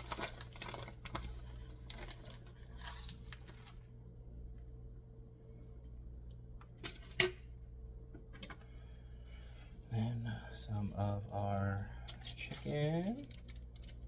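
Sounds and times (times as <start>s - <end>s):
cheese rustling on tortilla: 0.0s - 3.9s
steady low hum: 0.0s - 14.0s.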